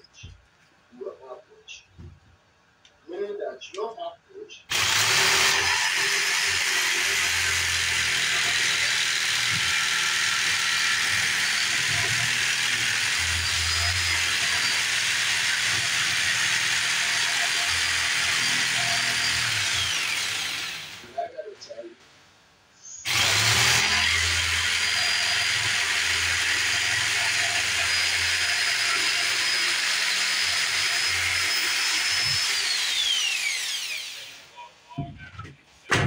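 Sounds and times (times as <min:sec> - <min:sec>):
jigsaw cutting a board: 0:04.7 - 0:21.1, 0:23.1 - 0:34.4.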